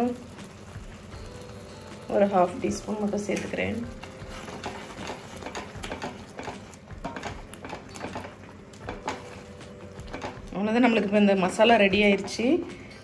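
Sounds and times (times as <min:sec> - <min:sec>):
wooden spatula scraping a steel pot: 0:02.1 - 0:09.4.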